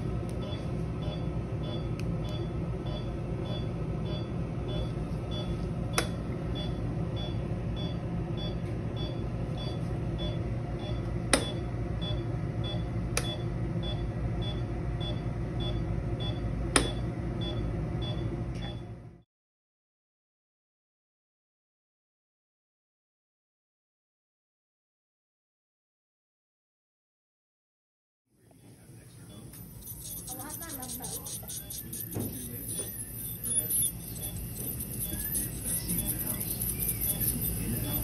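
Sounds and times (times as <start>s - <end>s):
hum of clinic equipment: 0.0s - 19.2s, 28.4s - 38.0s
patient monitor beeping: 0.4s - 18.8s, 29.0s - 38.0s.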